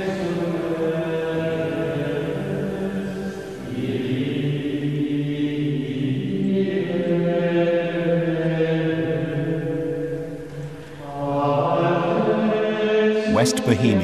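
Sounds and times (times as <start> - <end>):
voices chanting long notes: 11.1 - 14.0.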